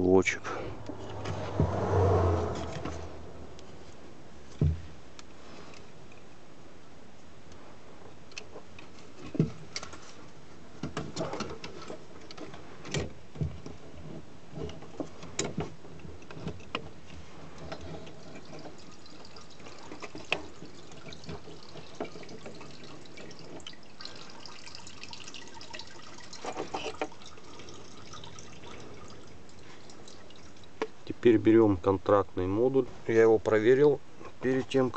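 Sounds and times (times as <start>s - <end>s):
petrol dripping and trickling: 17.6s - 31.1s.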